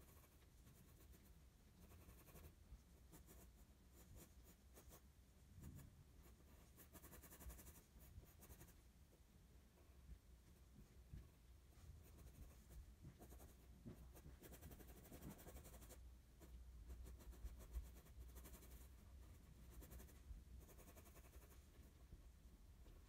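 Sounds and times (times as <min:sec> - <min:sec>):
pencil scratching on paper: 0:00.0 - 0:05.0, 0:05.6 - 0:08.8, 0:11.9 - 0:21.7.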